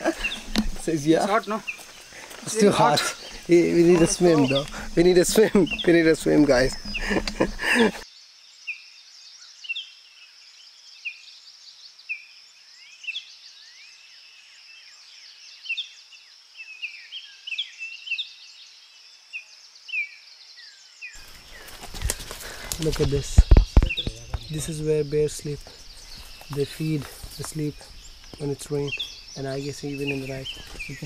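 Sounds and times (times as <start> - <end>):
birds chirping: 0.0 - 8.0, 21.2 - 31.0
high-pitched insect drone: 0.0 - 8.0.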